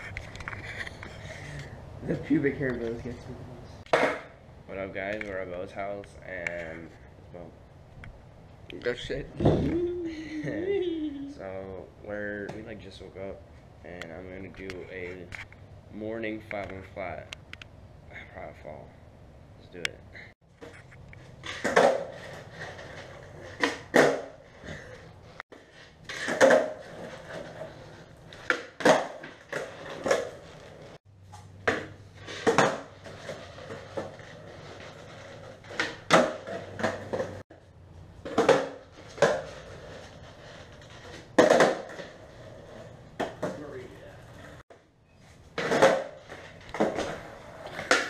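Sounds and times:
skateboard clacking on concrete: 3.9 - 4.3, 20.6 - 24.4, 25.6 - 30.8, 31.6 - 37.5, 38.2 - 43.7, 45.6 - 48.0.

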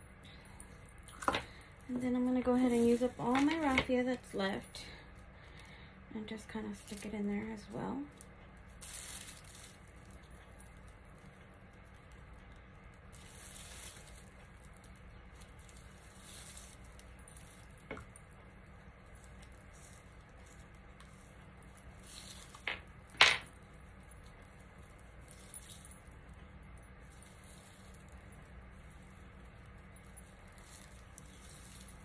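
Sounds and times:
raffia rustling: 0.5 - 4.7, 8.8 - 10.2, 13.1 - 32.0.

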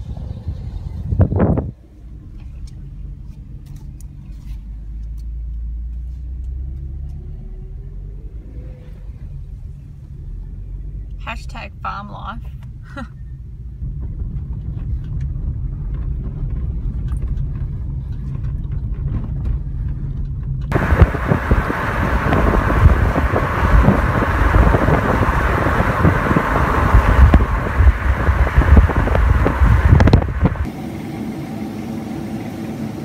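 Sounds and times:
wind rushing through car window: 0.0 - 3.8, 13.5 - 30.8
car road rumble on dirt: 0.0 - 33.0.

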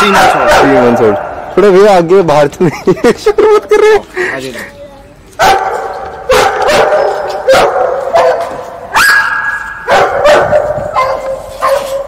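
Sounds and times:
dog yelping: 0.0 - 0.9, 5.4 - 12.0
dogs barking: 0.0 - 1.4, 5.4 - 12.0.

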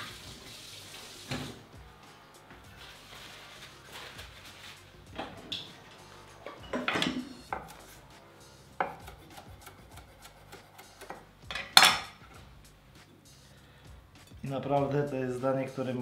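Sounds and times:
knife chopping on wooden board: 7.5 - 7.9, 8.8 - 11.2.

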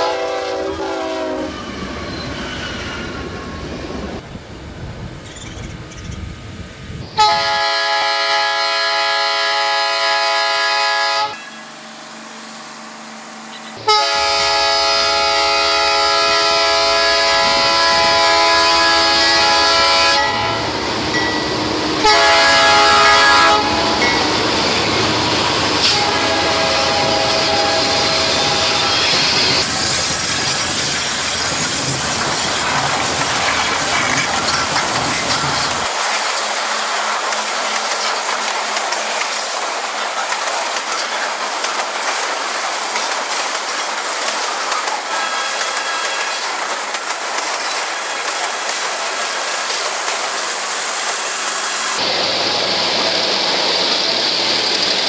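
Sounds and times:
locomotive horn blasts: 0.0 - 1.7, 7.2 - 12.0, 13.0 - 20.7, 22.0 - 24.3, 25.8 - 29.0
train wheels clattering on rails: 23.9 - 52.1.

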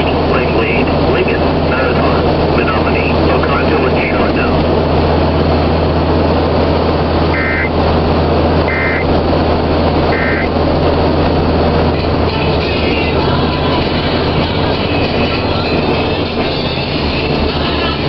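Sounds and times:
car road and engine noise: 0.0 - 18.0
short electronic beeps: 7.4 - 7.7, 8.7 - 9.1, 10.1 - 10.5.

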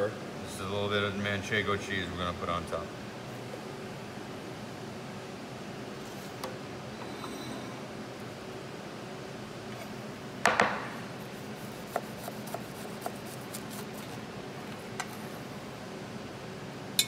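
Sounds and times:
knife cutting through toasted roll: 11.5 - 14.0.

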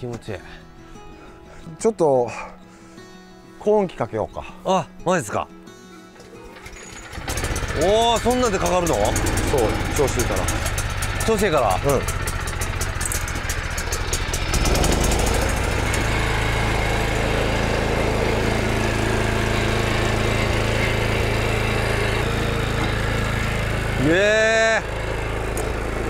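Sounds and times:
small petrol engine running: 6.2 - 26.0.

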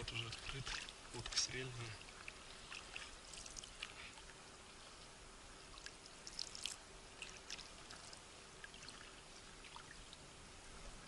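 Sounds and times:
oars splashing: 0.0 - 4.4
water trickling and dripping: 0.0 - 10.4.

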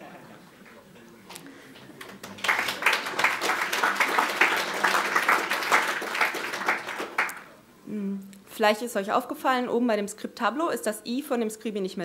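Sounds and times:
audience applauding: 1.9 - 7.5.

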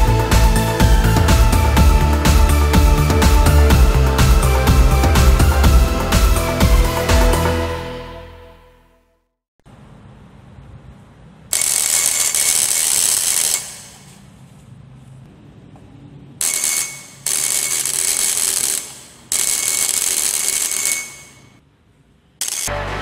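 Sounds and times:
electric bell buzzing and ringing: 11.5 - 14.2, 16.4 - 21.6, 22.4 - 23.0.

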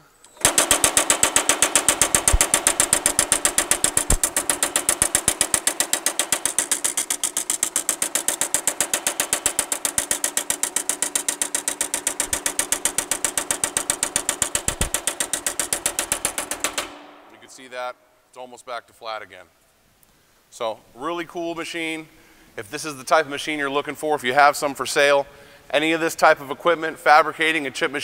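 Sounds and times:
power hammer striking sheet steel: 0.0 - 17.8.

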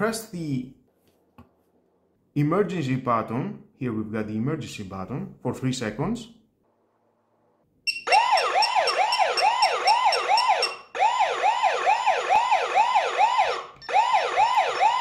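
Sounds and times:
alarm siren wailing: 7.9 - 15.0.

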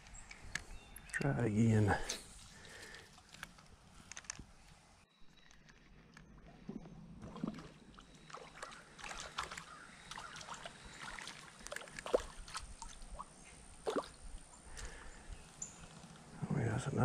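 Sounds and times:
clicks and rustles: 2.7 - 6.7
creek water splashing: 6.4 - 15.9.

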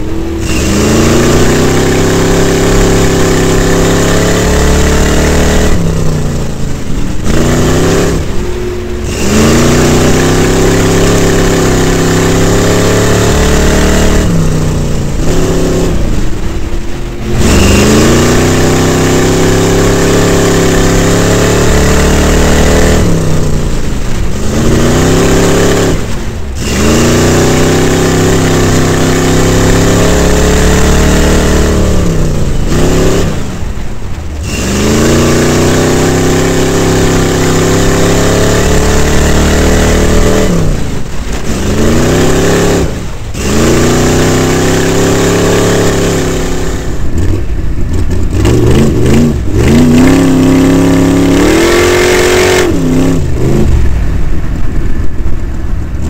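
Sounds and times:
truck engine revving: 0.0 - 56.0.

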